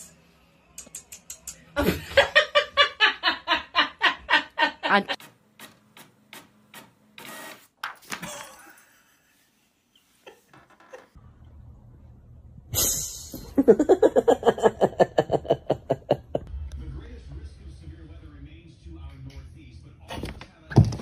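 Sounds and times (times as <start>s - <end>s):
person laughing hard: 13.4s - 16.5s.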